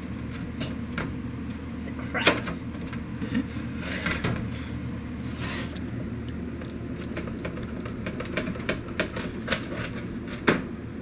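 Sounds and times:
low steady hum: 0.0s - 7.4s.

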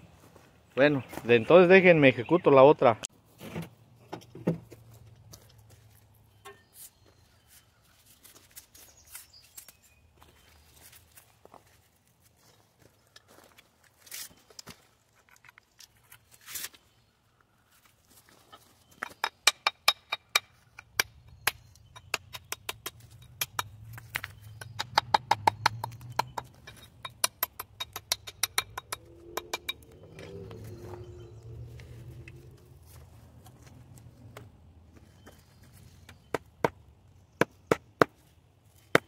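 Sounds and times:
sharp taps on stone: 19.0s - 30.0s
low hum: 28.0s - 35.2s.

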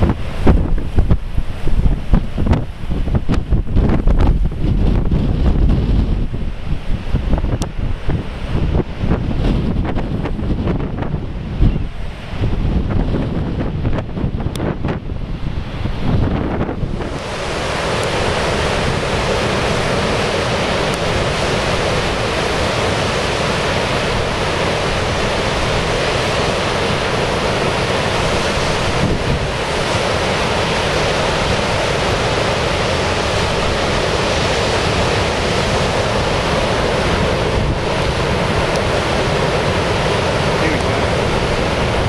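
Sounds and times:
ocean surf breaking: 0.0s - 42.0s
wind buffeting microphone: 0.0s - 42.0s.

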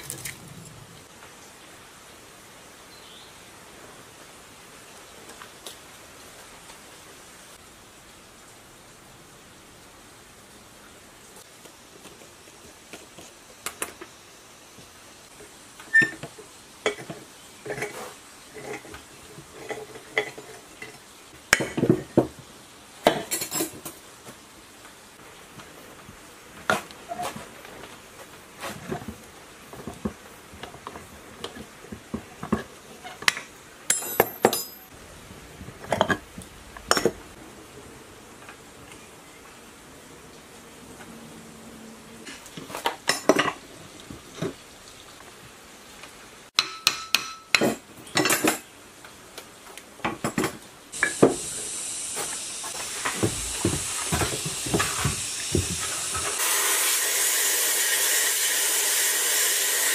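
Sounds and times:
metal tools clinking on workbench: 33.2s - 35.0s.

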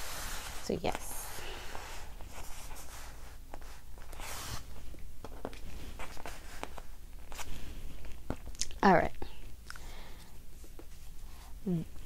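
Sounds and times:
paper pages rustling: 2.2s - 8.5s.

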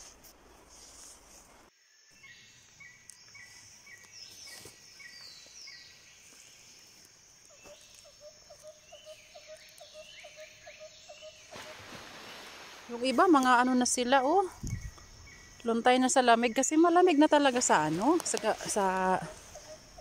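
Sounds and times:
soft rustles: 0.0s - 1.7s
faint bird calls: 19.0s - 20.0s.

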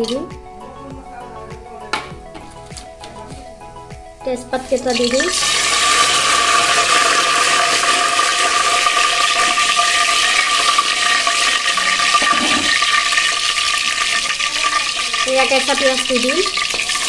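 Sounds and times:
spices sizzling in hot oil: 4.5s - 17.0s.

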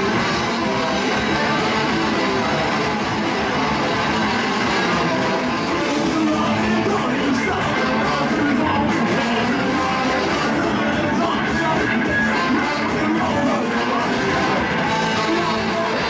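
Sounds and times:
trombone: 0.0s - 11.3s
electric guitars: 0.0s - 16.0s
ska-punk band playing live: 0.0s - 16.0s.

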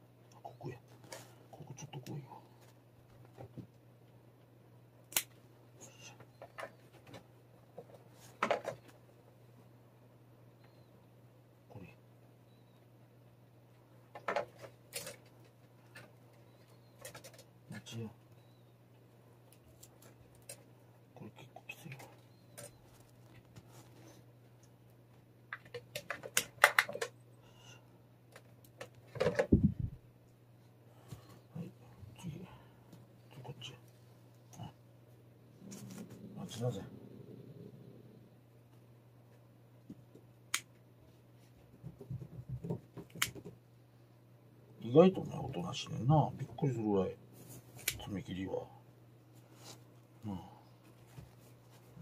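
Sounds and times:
nail clippers clipping claws: 5.1s - 5.3s.

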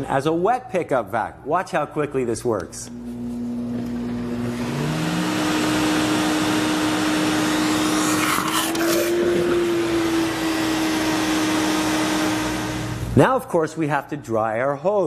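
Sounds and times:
vacuum motor whine and air rush: 2.9s - 13.2s.

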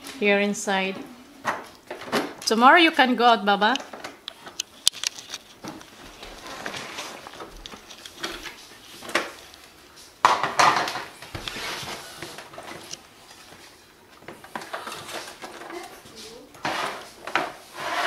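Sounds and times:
plastic parts rattling and scraping: 3.8s - 9.5s, 14.3s - 16.0s.

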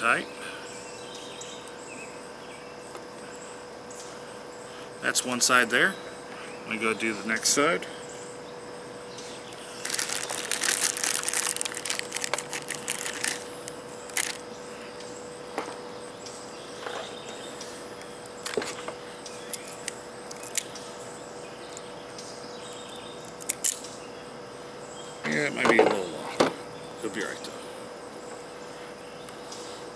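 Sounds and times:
faint steady hum: 0.0s - 29.9s
crackling and rustling of wire: 9.5s - 14.5s.

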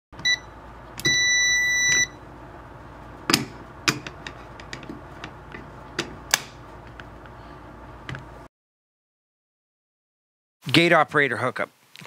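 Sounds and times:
keypad beep: 0.2s - 2.2s.

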